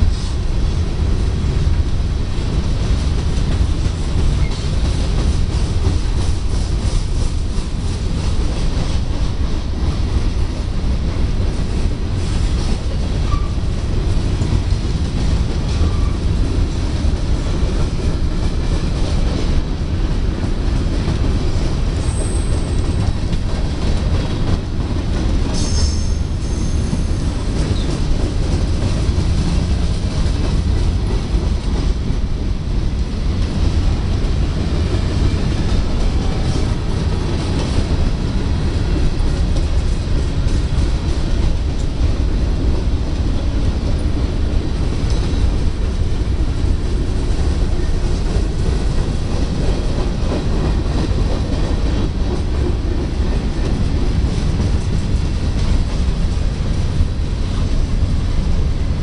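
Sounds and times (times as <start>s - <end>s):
freight train wheels rumbling: 0.0s - 59.0s
train wheel squeals: 4.3s - 4.8s, 13.1s - 13.7s, 15.7s - 16.4s, 21.9s - 23.4s, 25.5s - 28.1s.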